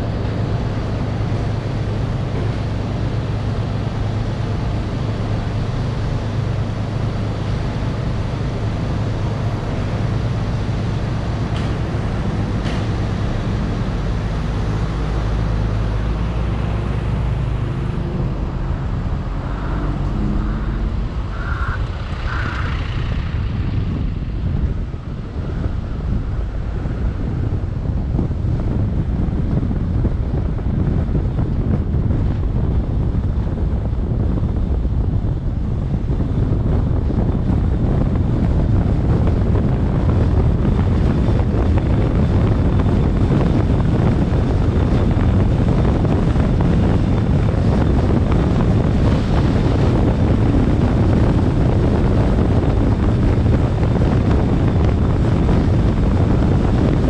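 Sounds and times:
car road noise: 0.0 - 57.0
wind buffeting microphone: 0.0 - 57.0.

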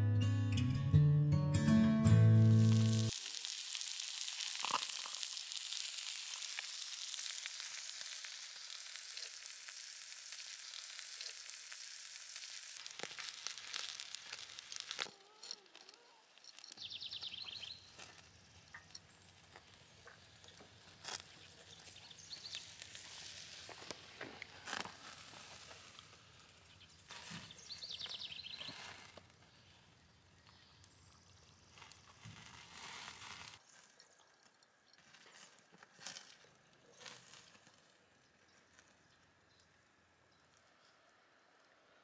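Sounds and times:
meat sizzling on grill: 2.4 - 28.9.

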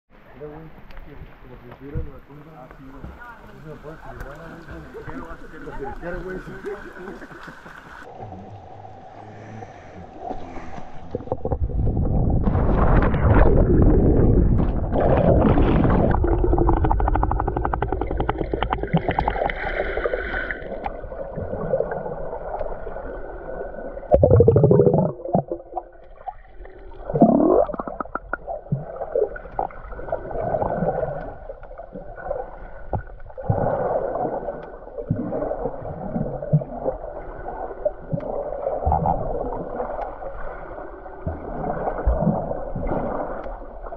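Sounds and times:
muffled underwater gurgling: 3.8 - 43.9.

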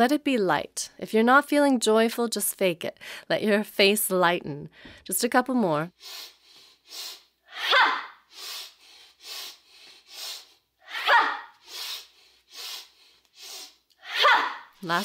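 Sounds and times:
woman sniffing in: 5.9 - 14.2.

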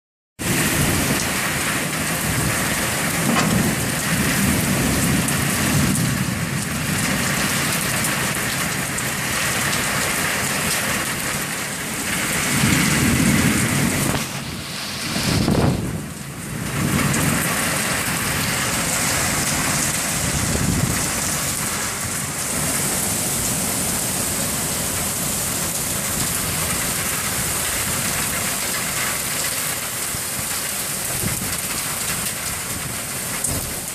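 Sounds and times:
thunder rumbles: 0.4 - 10.3, 11.0 - 22.8
heavy rain pouring: 0.4 - 33.9.

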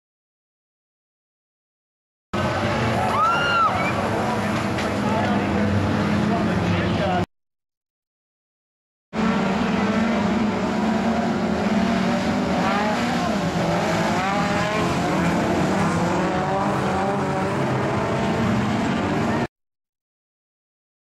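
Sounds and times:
race car engines running: 2.4 - 7.2, 9.2 - 19.5.

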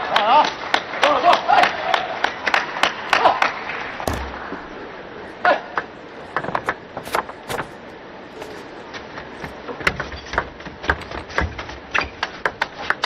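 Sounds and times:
low thud: 4.0 - 4.8.

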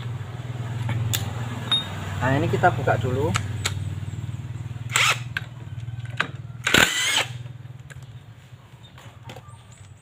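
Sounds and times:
impact wrench bursts: 4.9 - 5.5, 6.6 - 7.5.

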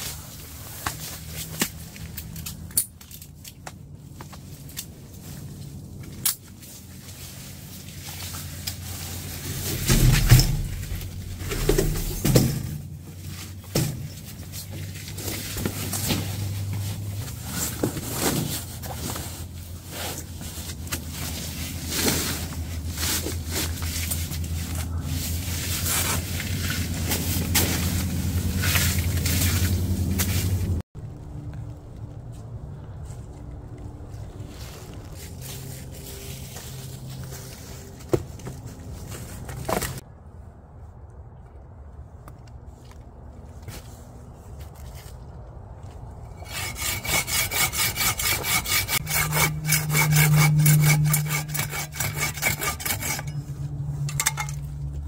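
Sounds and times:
metal frame clicking and knocking: 9.5 - 12.9, 54.1 - 54.6.

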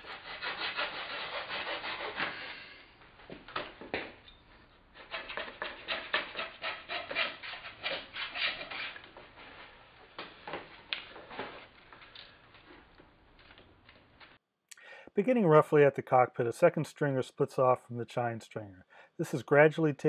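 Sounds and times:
block plane shaving wood: 0.0 - 2.6, 5.0 - 9.0.

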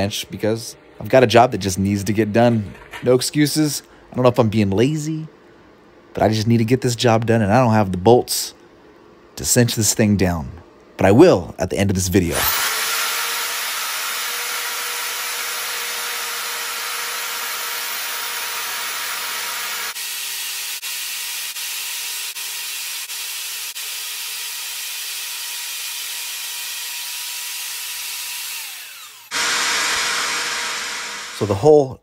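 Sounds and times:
drill press whirring and cutting: 12.4 - 31.8.

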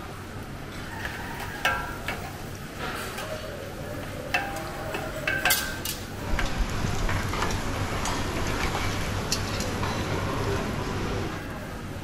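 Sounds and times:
metal skimmer clinks: 4.3 - 6.1.

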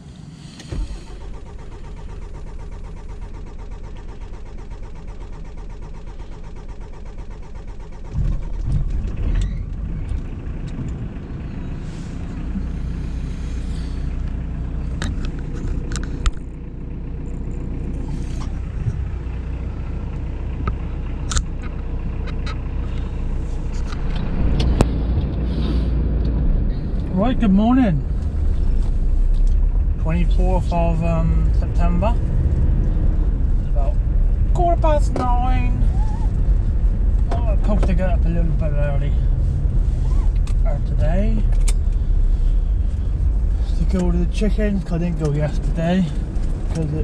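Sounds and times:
diesel engine starting and idling: 0.0 - 47.0.

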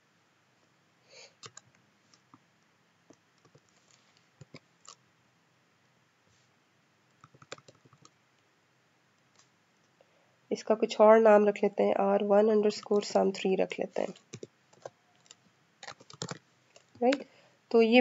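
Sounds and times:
computer keyboard keystrokes: 1.4 - 1.7, 3.4 - 3.7, 7.2 - 8.1, 14.1 - 17.2.

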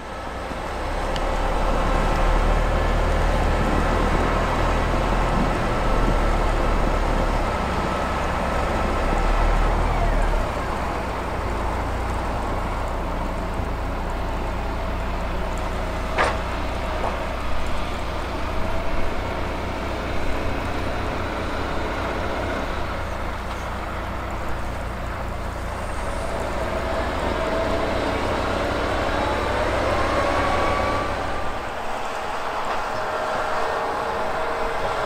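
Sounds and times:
diesel machine rumbling: 0.0 - 35.0.

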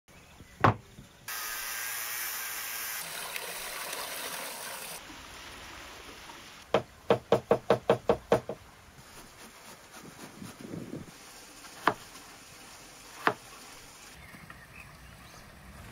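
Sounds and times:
water poured from a pot: 2.6 - 5.0.

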